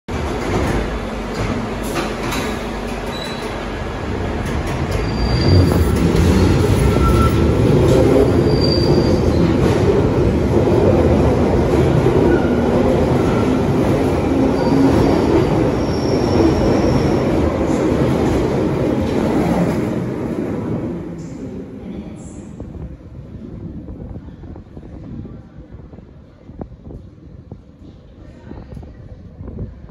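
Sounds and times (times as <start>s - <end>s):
train wheels rumbling on rail: 0.1s - 29.9s
high wheel squeals: 4.9s - 7.6s.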